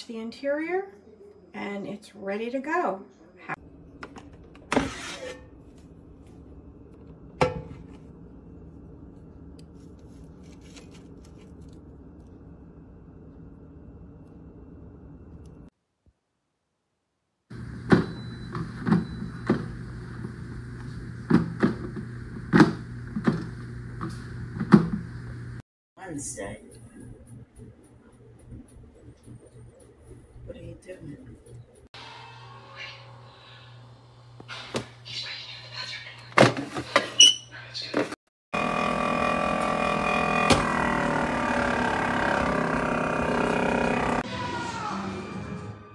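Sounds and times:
steady low hum: 18.7 - 34.5
air fryer fan humming: 38.6 - 44.2.

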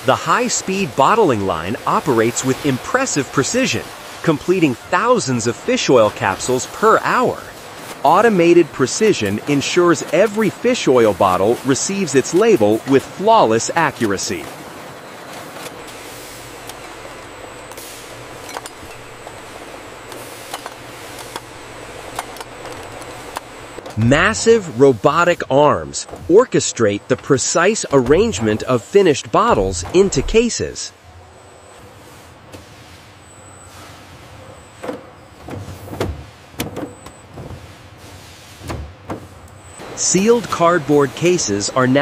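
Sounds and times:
steady machinery hum: 0.0 - 42.0
mechanical clunks and clicks: 16.6 - 24.1, 27.9 - 28.8, 29.5 - 30.6.

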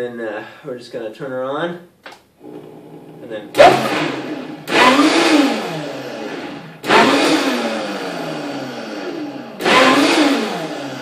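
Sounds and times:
blender motor pulsing: 2.4 - 11.0.

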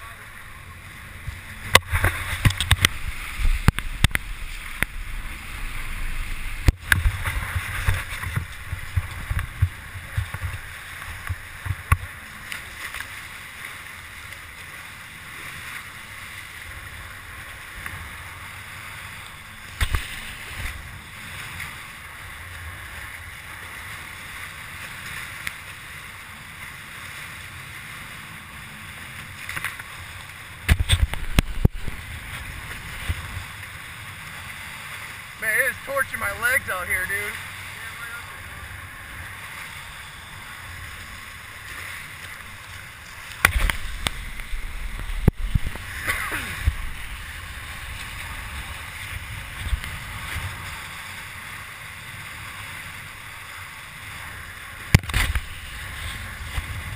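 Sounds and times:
water splashing along boat hulls: 0.0 - 56.9
wind buffeting microphone: 43.4 - 50.9, 54.9 - 56.9.

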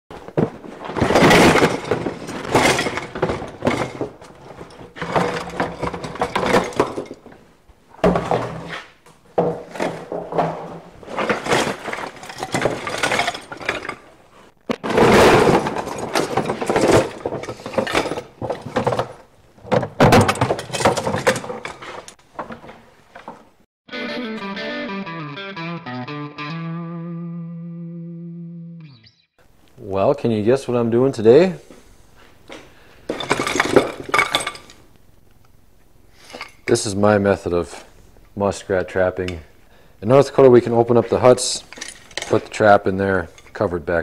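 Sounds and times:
metal traps and chains clattering: 0.8 - 7.3, 9.8 - 14.2, 14.8 - 19.2, 20.0 - 22.2, 33.1 - 34.8, 41.4 - 43.6.

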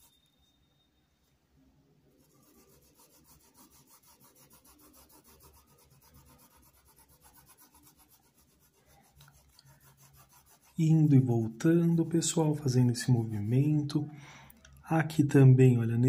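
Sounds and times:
paintbrush scrubbing fabric: 0.0 - 0.3, 2.1 - 13.8.

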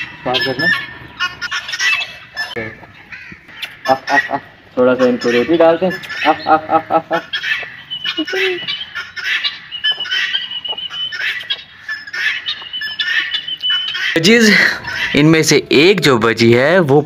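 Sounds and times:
poultry chirps and whistled notes: 0.0 - 2.7, 7.2 - 15.2
poultry honking calls: 0.0 - 16.6.

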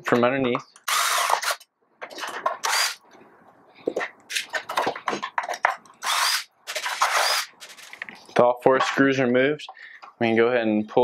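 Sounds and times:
cordless drill spinning: 0.9 - 1.6, 2.6 - 3.0, 6.0 - 7.9
handling clicks and knocks: 3.9 - 6.0.

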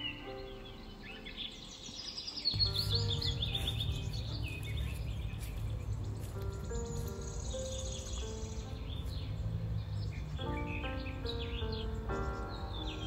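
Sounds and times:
small birds chirping and singing: 0.0 - 13.0
soft music with sustained notes: 0.0 - 13.0
low steady rumble: 2.6 - 12.8.

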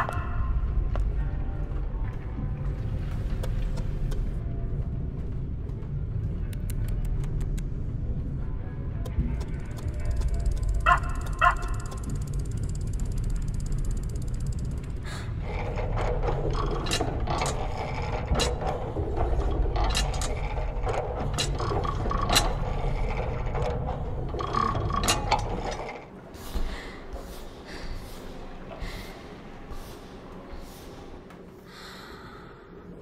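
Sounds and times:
low rumble: 0.0 - 26.1
sharp ticks and clicks: 9.0 - 15.1
clockwork machinery clicking: 9.4 - 26.1.

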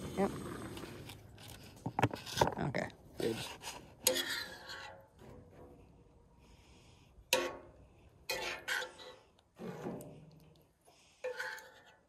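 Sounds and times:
metal spoon scooping in skillet: 11.2 - 12.0.

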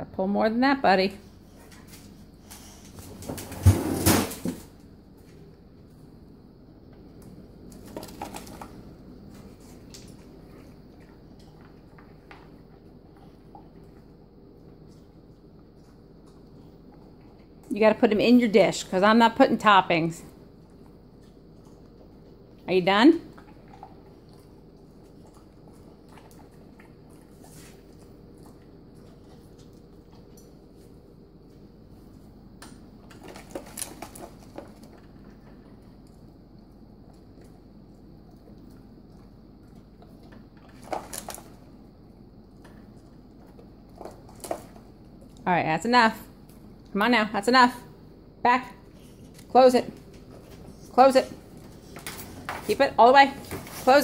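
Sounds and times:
steady low hum: 0.0 - 54.0
dog eating from a bowl: 6.9 - 45.4
dog chewing and licking: 20.5 - 22.7, 23.3 - 31.6
small clicks and crunches: 32.6 - 36.2.

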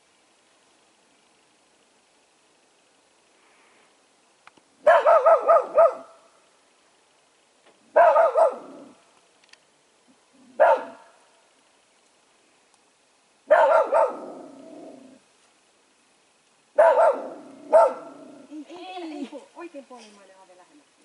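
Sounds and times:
dog barking: 4.8 - 6.2, 7.9 - 8.9, 10.6 - 11.1, 13.5 - 14.6, 16.8 - 18.3.

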